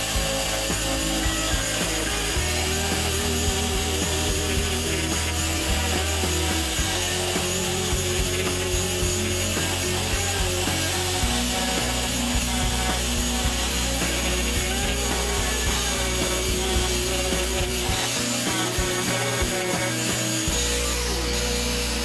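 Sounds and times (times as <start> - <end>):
angle grinder carving wood: 0.0 - 22.0.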